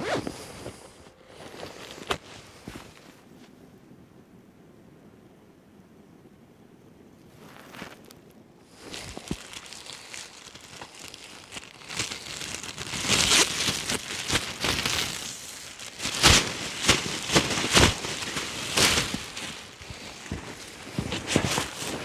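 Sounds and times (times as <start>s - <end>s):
plastic sheeting crackling: 8.8s - 22.0s.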